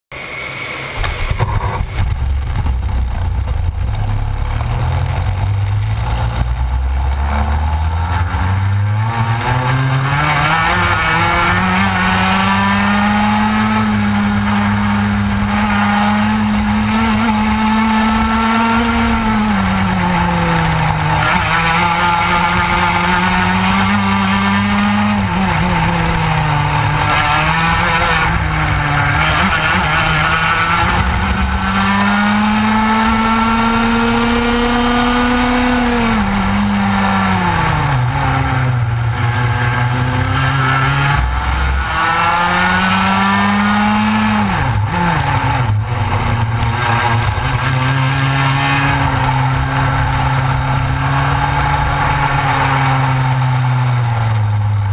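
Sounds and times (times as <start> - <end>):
kart engine revving: 0.2 - 54.9.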